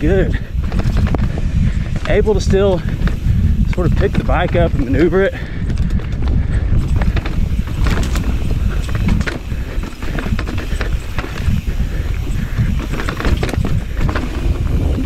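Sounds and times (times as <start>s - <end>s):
bike clicking and rattling: 0.0s - 15.0s
bike tyres rumbling over dirt: 0.0s - 15.0s
wind rumble on microphone: 0.0s - 15.0s.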